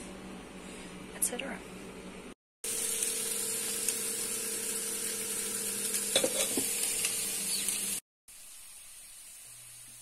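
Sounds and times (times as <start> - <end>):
food sizzling in frying pans: 2.6 - 10.0.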